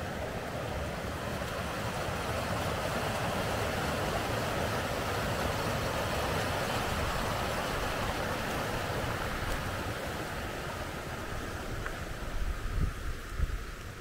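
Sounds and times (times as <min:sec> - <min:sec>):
stream water rushing: 0:00.0 - 0:14.0.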